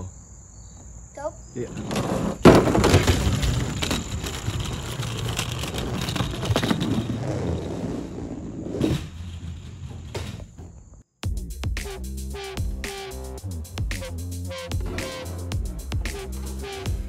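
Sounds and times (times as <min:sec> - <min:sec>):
toy truck tyres rumbling: 0:01.7 - 0:11.0, 0:14.7 - 0:16.7.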